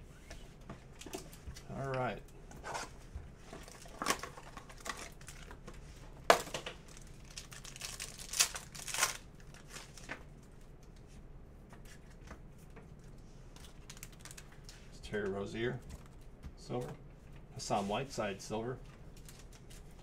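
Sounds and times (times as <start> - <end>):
foil pack crinkling and tearing: 3.6 - 5.7, 6.3 - 10.2, 13.5 - 14.7, 19.1 - 20.0.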